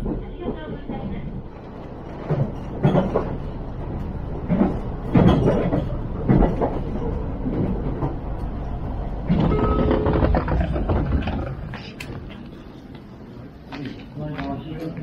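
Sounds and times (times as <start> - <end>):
train running rumble: 0.0 - 15.0
wheels knocking on rails: 4.4 - 8.3, 9.2 - 12.3.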